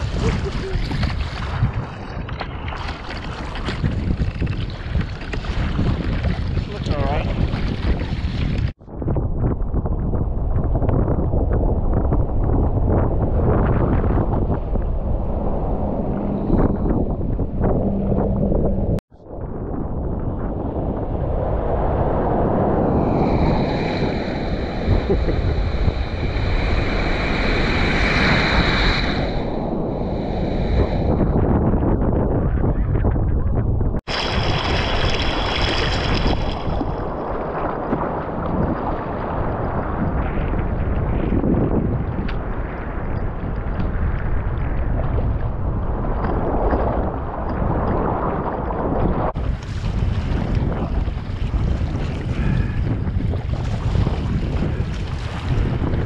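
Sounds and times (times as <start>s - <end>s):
sea water rushing and splashing: 0.0s - 8.8s, 21.0s - 31.3s, 34.1s - 41.2s, 46.0s - 56.0s
wind buffeting microphone: 0.0s - 56.0s
breaking surf: 20.5s - 31.4s, 34.1s - 41.3s, 46.1s - 56.0s.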